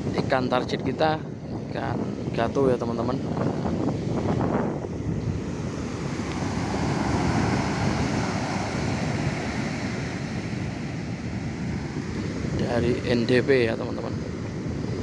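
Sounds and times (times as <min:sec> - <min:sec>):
ocean waves on beach: 0:03.2 - 0:15.0.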